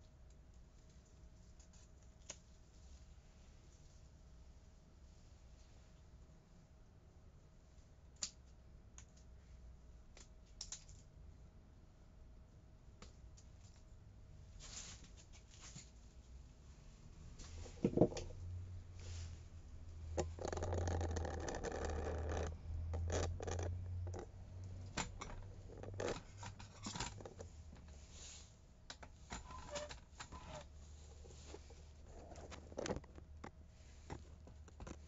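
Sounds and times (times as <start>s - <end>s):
rustling: 14.4s - 35.0s.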